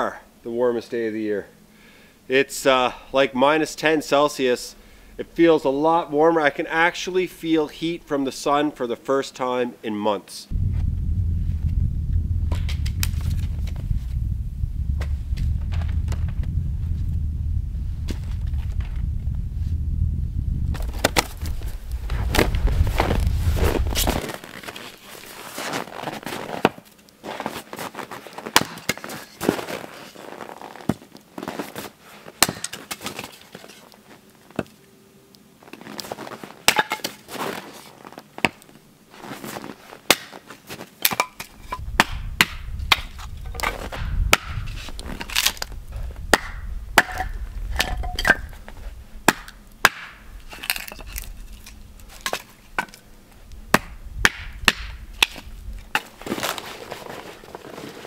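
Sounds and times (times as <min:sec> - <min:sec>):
axe splitting firewood: 0:28.5 - 0:29.3, 0:32.4 - 0:33.4, 0:36.6 - 0:37.2, 0:40.1 - 0:40.4, 0:41.0 - 0:45.7, 0:46.3 - 0:48.6, 0:49.2 - 0:53.0, 0:53.7 - 0:56.6.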